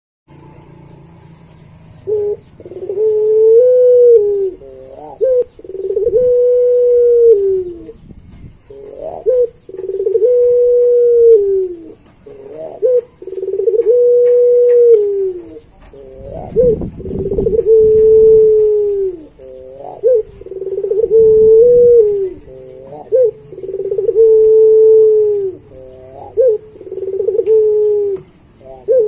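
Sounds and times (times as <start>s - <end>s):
dove cooing: 0.6s - 29.0s.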